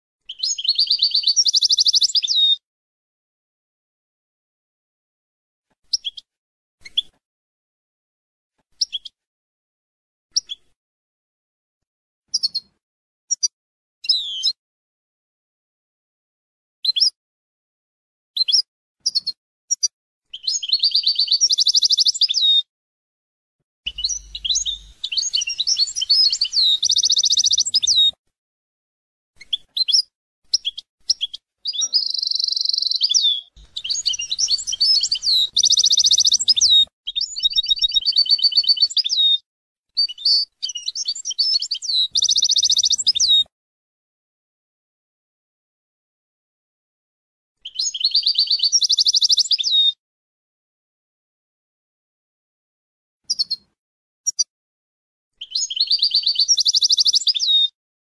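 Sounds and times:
goldfinch singing: 0.3s - 2.5s, 23.9s - 28.2s, 30.6s - 39.4s, 40.0s - 43.4s.

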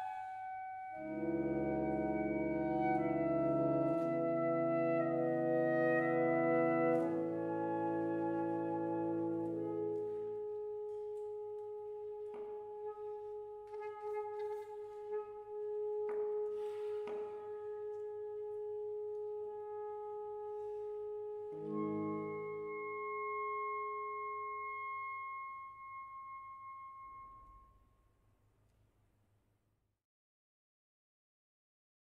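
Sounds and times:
saxophone quartet playing: 0.2s - 10.4s, 21.5s - 24.5s.

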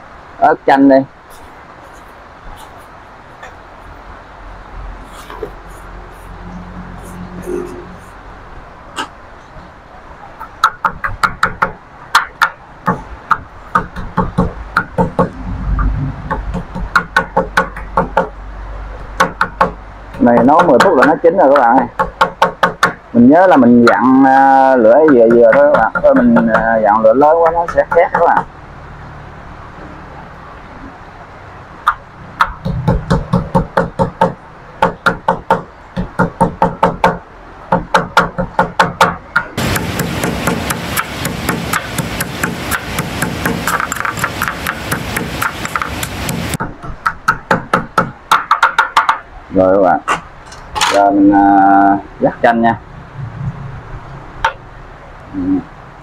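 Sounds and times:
wooden pestle pounding in bowl: 24.9s - 28.5s, 31.9s - 49.2s.

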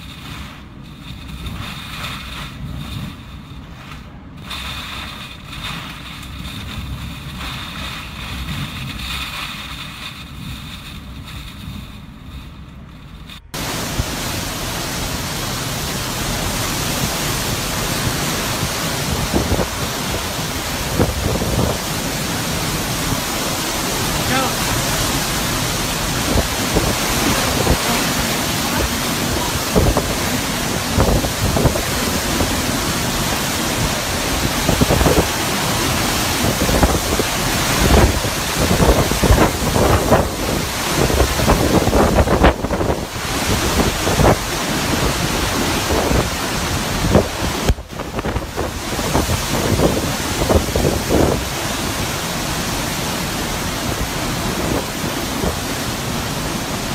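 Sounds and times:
strong wind and driving rain: 0.0s - 56.9s
wind buffeting microphone: 0.0s - 56.9s.

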